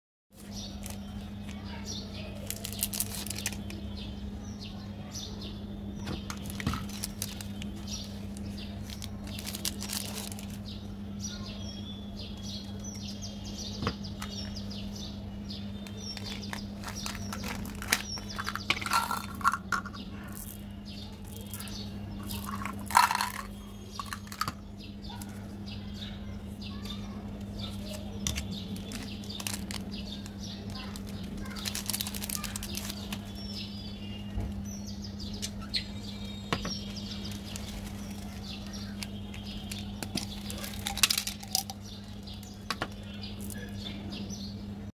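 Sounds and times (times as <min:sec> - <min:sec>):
plastic wrappers crinkling and tearing: 0:00.4 - 0:01.6, 0:02.4 - 0:03.8, 0:06.3 - 0:10.7, 0:15.8 - 0:20.6, 0:21.2 - 0:24.5, 0:27.7 - 0:34.3, 0:36.9 - 0:42.8.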